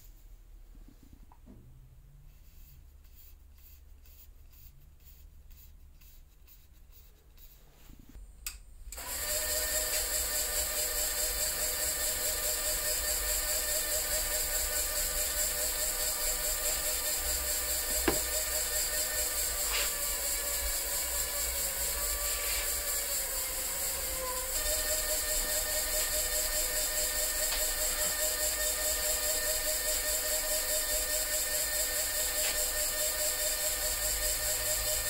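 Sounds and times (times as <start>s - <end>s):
lathe motor whine: 9.0s - 35.0s.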